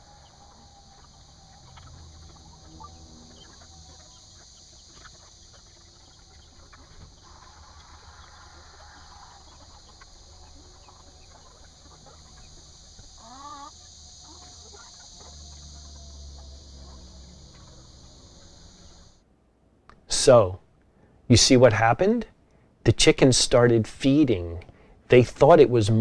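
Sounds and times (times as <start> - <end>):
chicken wavering call: 0.0 - 19.2
chickens clucking: 0.0 - 19.2
steady high hiss: 0.0 - 26.0.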